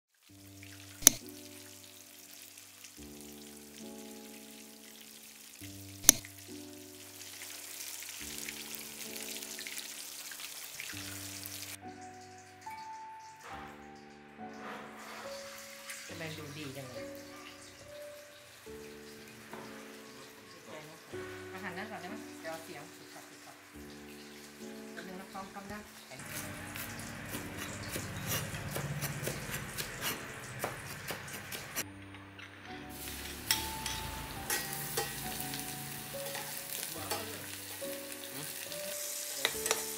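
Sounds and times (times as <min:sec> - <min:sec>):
food sizzling in hot oil: 0:00.1 - 0:31.9, 0:32.8 - 0:39.9
soft background music: 0:00.2 - 0:39.9.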